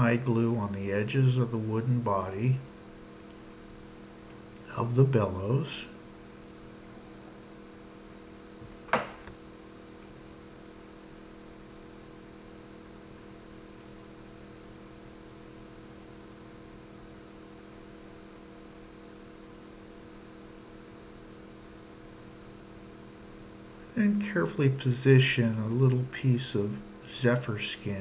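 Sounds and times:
electrical mains hum: 0.0 - 28.0
sharp tap: 8.9 - 9.3.

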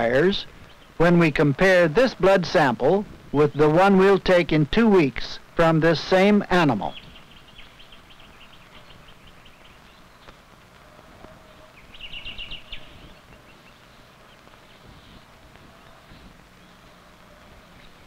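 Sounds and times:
faint bird chirps: 6.9 - 18.0.

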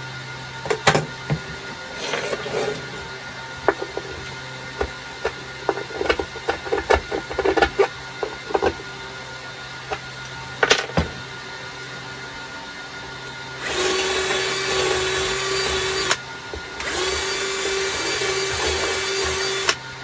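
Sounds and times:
tools clattering: 0.6 - 3.1, 10.6 - 11.2.

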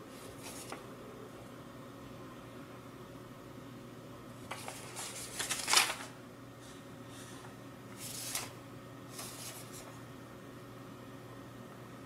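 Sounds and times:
low steady hum: 0.0 - 12.0
paper leaflet rustling: 0.1 - 0.8, 4.5 - 6.2, 8.0 - 10.0.

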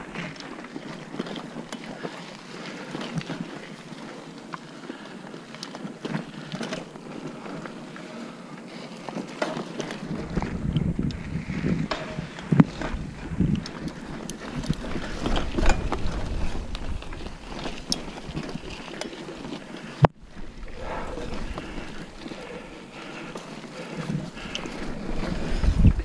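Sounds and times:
bike tyres on dirt trail: 0.0 - 26.0
bike frame rattling and knocking: 9.4 - 19.6
wind on microphone: 10.0 - 18.7, 24.2 - 26.0.

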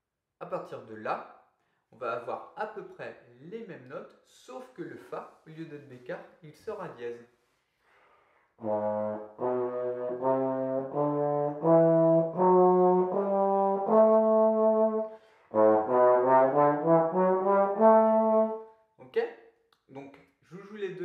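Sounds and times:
breath: 1.6 - 1.9, 7.4 - 8.6, 15.0 - 15.6
trombone playing a scale: 8.6 - 18.6.

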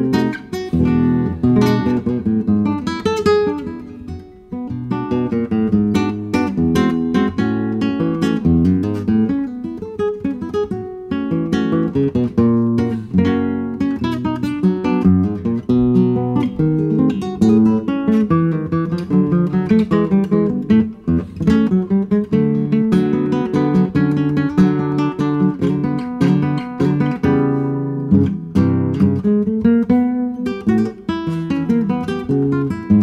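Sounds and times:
fingerpicked classical guitar: 0.0 - 33.0.

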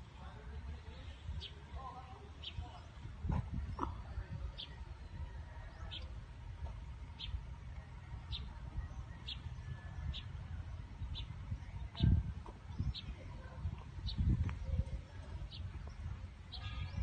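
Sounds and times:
low rumbling background noise: 0.0 - 17.0
bird chirping: 4.5 - 17.0.

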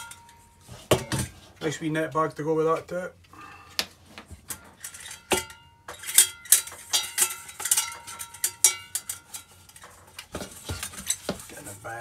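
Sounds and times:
metal pots clinking together: 0.0 - 1.3, 4.8 - 11.4.

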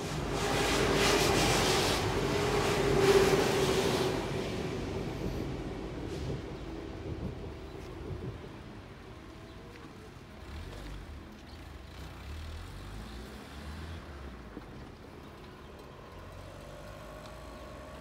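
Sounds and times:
wind rumble on microphone: 0.0 - 10.1
cars idling and pulling away: 0.0 - 18.0
car engine approaching: 10.0 - 18.0.

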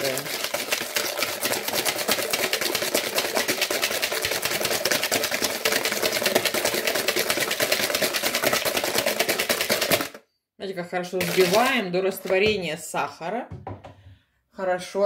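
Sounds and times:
whisk clicking against metal bowl: 0.0 - 10.2.

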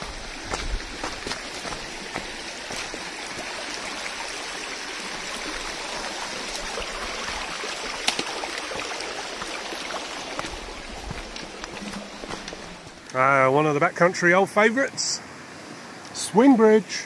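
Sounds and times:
footsteps wading through water: 0.0 - 13.0
stream running over stones: 0.0 - 17.0.

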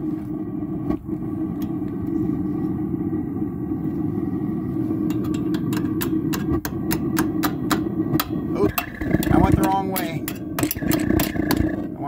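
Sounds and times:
gas burner low rumble: 0.0 - 12.0
sharp pops of sputtering flame: 5.0 - 12.0.

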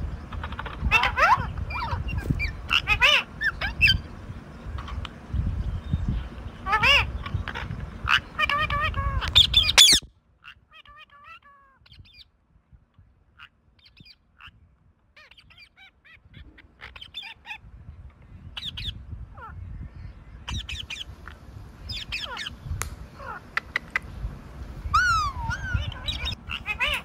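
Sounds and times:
parakeet calling: 0.2 - 5.0, 6.5 - 12.2, 15.2 - 17.7, 18.5 - 21.2, 21.8 - 24.2, 24.8 - 27.0
parakeet screeches: 8.1 - 10.1, 24.9 - 27.0.

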